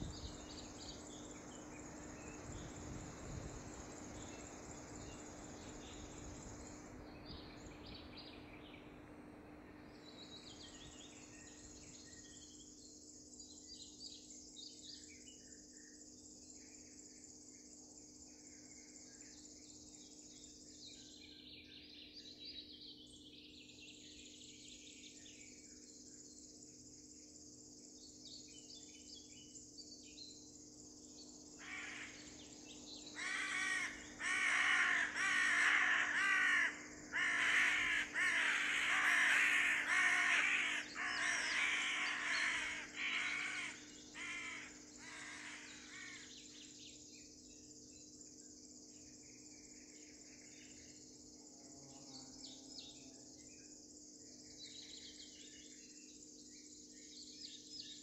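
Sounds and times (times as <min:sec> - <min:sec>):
high insect-like hiss: 0:00.0 - 0:08.7, 0:25.3 - 0:58.0
owl screeching calls: 0:31.6 - 0:32.2, 0:33.2 - 0:46.3.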